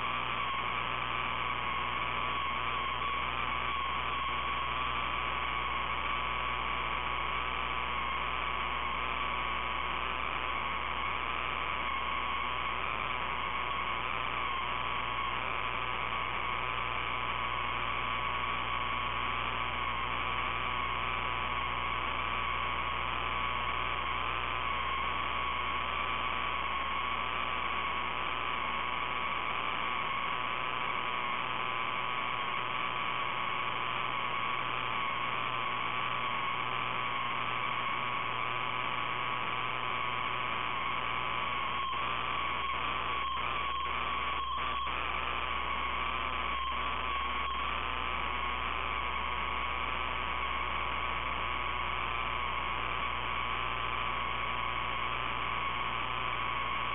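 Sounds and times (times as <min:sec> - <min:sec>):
electrical hum: 0:00.0 - 0:56.9
static hiss: 0:00.0 - 0:56.9
high wavering whine: 0:38.2 - 0:49.0.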